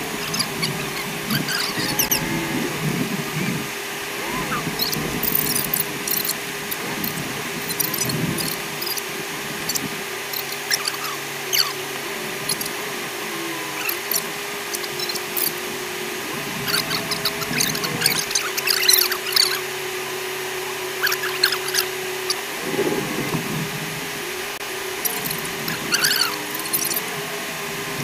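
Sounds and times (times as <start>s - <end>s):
squeaky garbled chatter: 0.0s - 23.3s, 25.0s - 27.3s
vehicle hum: 0.0s - 28.0s
rapid clicks and rattles: 4.6s - 11.7s, 25.0s - 27.1s.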